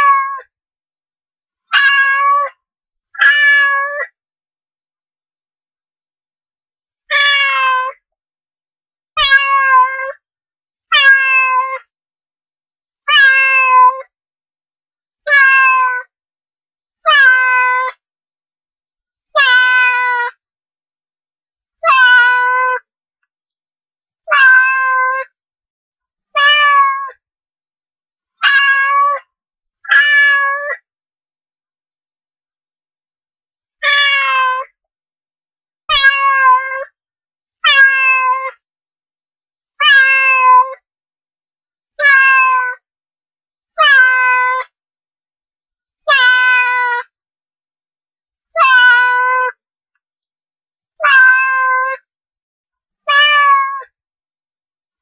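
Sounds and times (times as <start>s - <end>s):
cat meowing: 0.0s - 0.4s, 1.7s - 2.6s, 3.2s - 4.1s, 7.1s - 8.0s, 9.2s - 10.2s, 10.9s - 11.8s, 13.1s - 14.1s, 15.3s - 16.1s, 17.1s - 18.0s, 19.4s - 20.3s, 21.8s - 22.9s, 24.3s - 25.3s, 26.4s - 27.2s, 28.4s - 29.2s, 29.9s - 30.8s, 33.8s - 34.7s, 35.9s - 36.9s, 37.6s - 38.6s, 39.8s - 40.8s, 42.0s - 42.8s, 43.8s - 44.7s, 46.1s - 47.1s, 48.6s - 49.6s, 51.0s - 52.0s, 53.1s - 53.9s.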